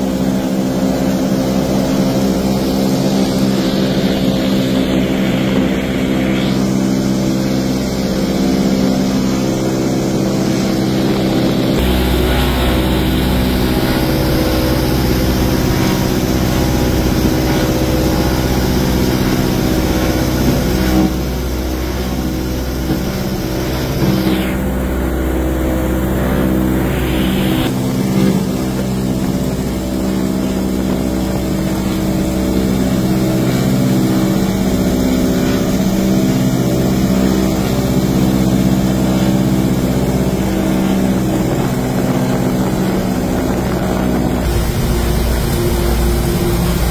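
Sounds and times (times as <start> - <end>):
propeller aircraft engines droning: 0.0 - 46.9
wind rushing: 40.1 - 46.9.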